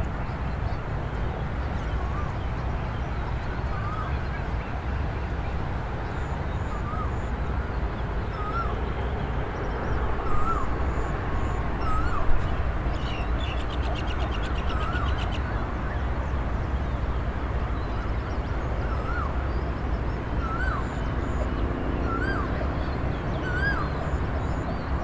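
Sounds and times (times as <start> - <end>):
whistled bird call: 20.4 - 21.0, 22.0 - 22.5, 23.4 - 24.0.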